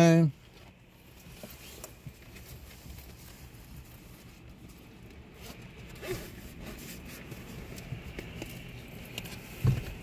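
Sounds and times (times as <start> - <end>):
windshield wiper thump: 9.5 - 10.0.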